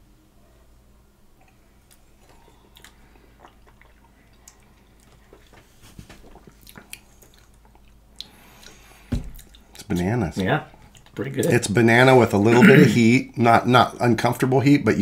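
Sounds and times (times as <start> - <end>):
low room hum: 0.0 - 15.0
person sipping: 1.4 - 9.7
lip smacks and tongue clicks: 1.4 - 9.9.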